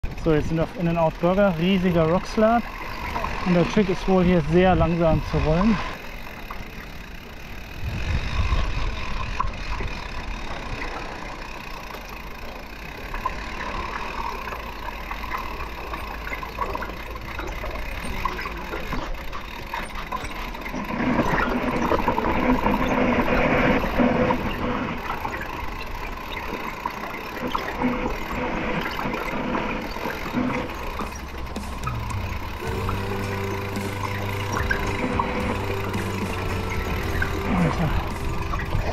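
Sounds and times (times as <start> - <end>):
bike tyres grinding over rock: 0.0 - 38.9.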